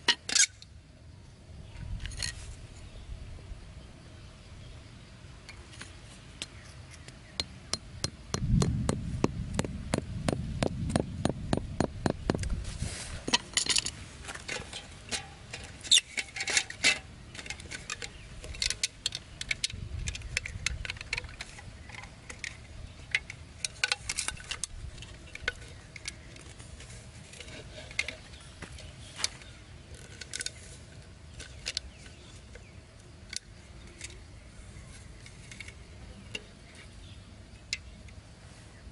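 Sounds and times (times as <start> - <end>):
hatchet tapping bamboo: 6.4 - 12.6.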